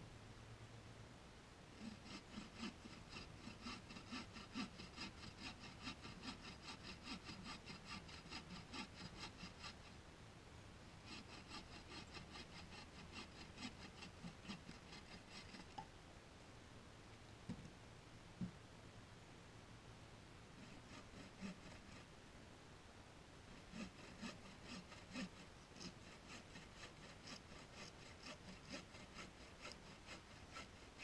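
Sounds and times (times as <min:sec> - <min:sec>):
hand saw cutting branch: 0:01.8 - 0:10.0, 0:11.0 - 0:15.8, 0:20.6 - 0:22.1, 0:23.5 - 0:31.0.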